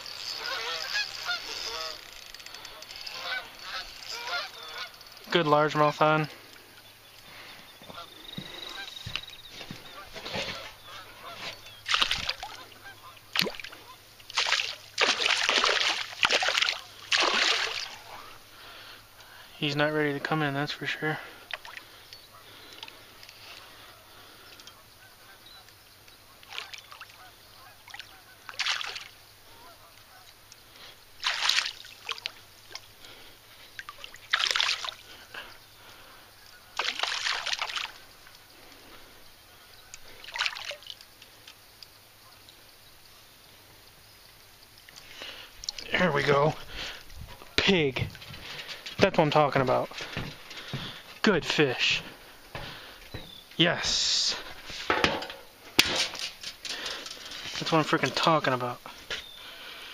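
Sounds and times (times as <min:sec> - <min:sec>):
fish splashing at the surface: 0:11.8 - 0:18.4, 0:26.4 - 0:27.2, 0:27.8 - 0:29.2, 0:31.2 - 0:32.9, 0:33.8 - 0:35.2, 0:36.8 - 0:38.1, 0:40.0 - 0:41.1.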